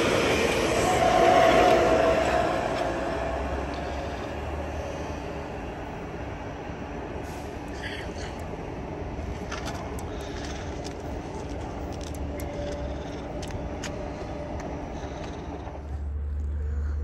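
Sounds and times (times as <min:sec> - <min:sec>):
train rumbling on tracks: 0:00.0 - 0:17.0
sharp track clicks: 0:09.2 - 0:15.8.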